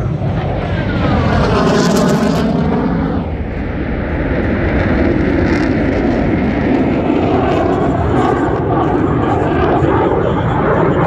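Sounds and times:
jet flying overhead roaring: 0.0s - 11.0s.

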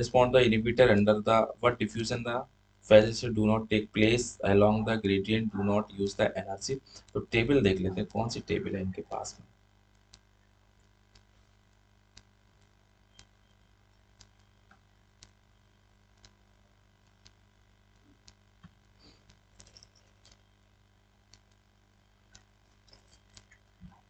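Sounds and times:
soft clicks: 9.9s - 11.3s, 12.1s - 15.4s, 16.1s - 20.5s, 21.3s - 24.0s
faint sharp ticks: 12.1s - 15.4s, 16.1s - 16.4s, 17.0s - 17.4s.

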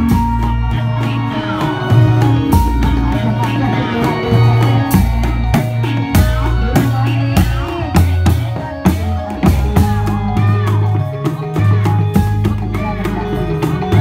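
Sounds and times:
drums driving beat: 0.0s - 14.0s
held bass notes: 0.0s - 14.0s.

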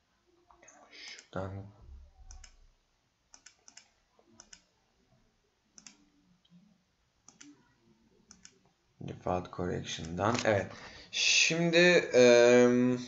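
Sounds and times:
computer mouse clicks: 1.1s - 1.4s, 2.2s - 2.6s, 3.3s - 4.7s, 5.7s - 6.6s, 7.2s - 7.7s, 8.3s - 8.7s.

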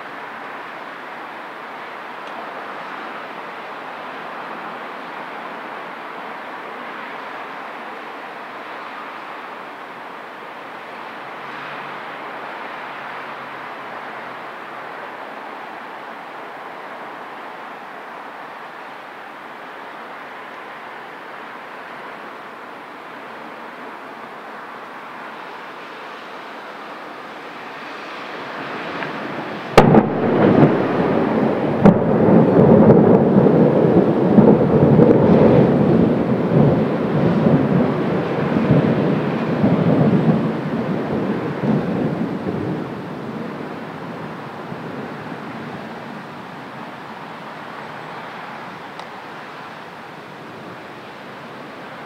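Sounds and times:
background hiss: 0.0s - 52.0s
rolling thunder rumble: 28.6s - 47.2s
thunder crack: 29.2s - 45.2s.

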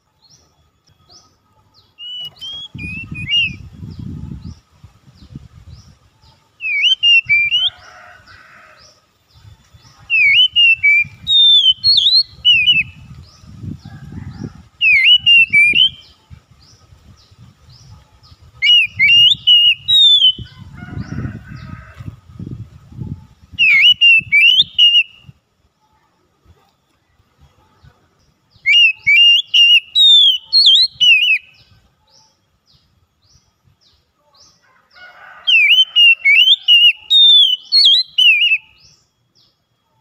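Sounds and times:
bird singing whistled phrases: 2.0s - 3.7s, 6.6s - 7.7s, 10.1s - 13.0s, 14.8s - 16.1s, 18.6s - 20.5s, 23.6s - 25.2s, 28.6s - 31.6s, 35.5s - 39.0s.

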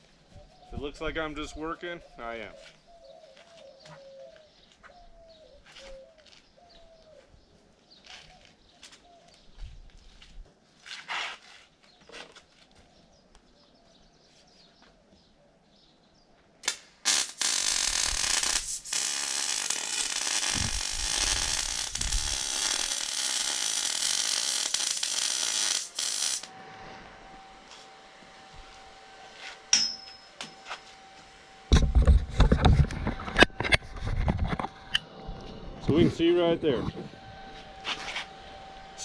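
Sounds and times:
arc welding buzz: 16.6s - 33.8s, 37.1s - 39.0s.

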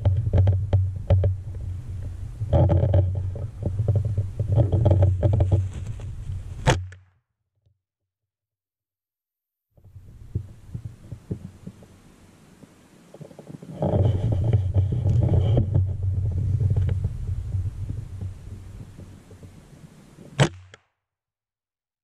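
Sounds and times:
rumbling on camera microphone: 0.0s - 6.8s, 9.8s - 20.4s
sharp crack: 6.6s - 7.1s, 20.2s - 20.9s.

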